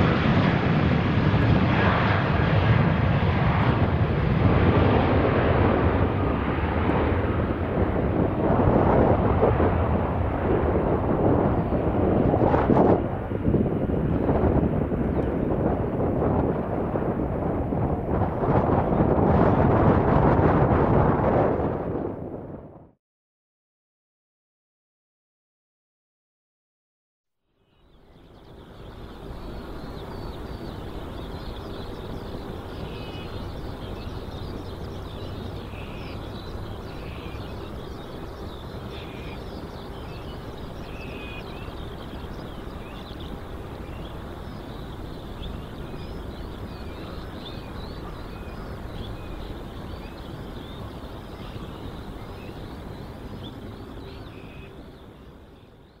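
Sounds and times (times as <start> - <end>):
distant jet aircraft engine: 0.0 - 23.0, 27.7 - 56.0
small birds chirping: 27.6 - 56.0.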